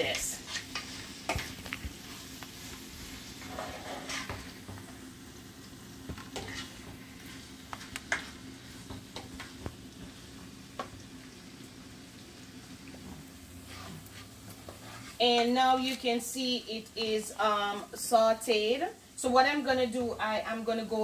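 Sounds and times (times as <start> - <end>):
vegetables sizzling in frying pan: 0.0 - 21.0
spoon scraping and tapping pan: 3.4 - 4.9, 6.1 - 9.7.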